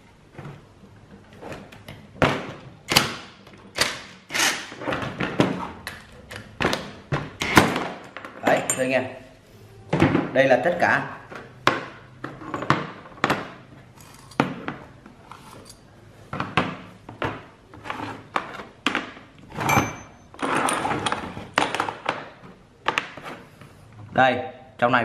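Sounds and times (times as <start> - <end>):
metal ringing: 19.6 - 20.3.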